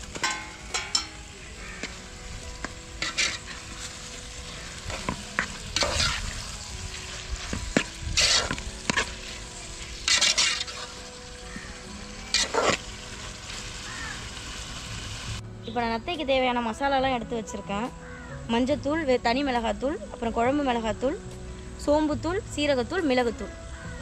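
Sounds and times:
low sizzle: 0:00.0 - 0:24.0
ladle scraping a metal pot: 0:03.0 - 0:11.2, 0:12.3 - 0:12.8.

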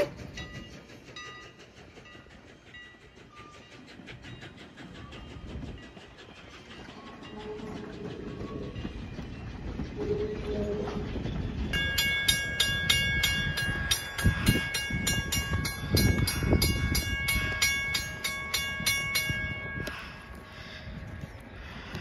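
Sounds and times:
train coaches rumbling past: 0:00.0 - 0:22.0
grade crossing bell ringing: 0:07.0 - 0:20.4.

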